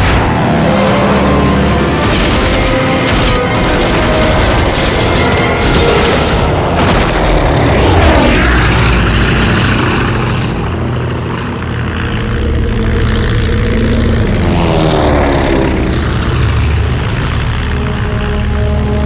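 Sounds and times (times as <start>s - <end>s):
propeller plane engine drone: 0.0s - 19.0s
plane sweeping past: 6.4s - 19.0s.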